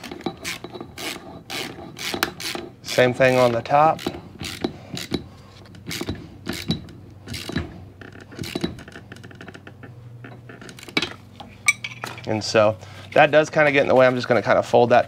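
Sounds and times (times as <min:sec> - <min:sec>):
metal tools clinking: 0:11.6 - 0:12.4.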